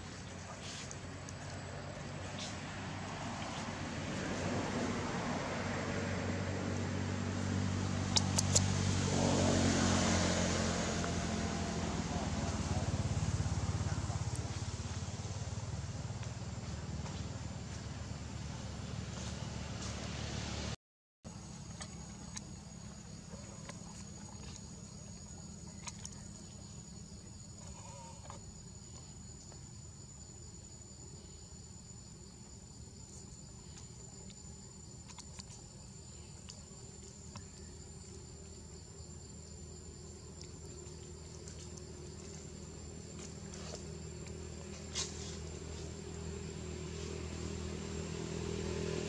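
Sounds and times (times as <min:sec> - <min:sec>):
low steady rumble: 0:10.2 - 0:49.0.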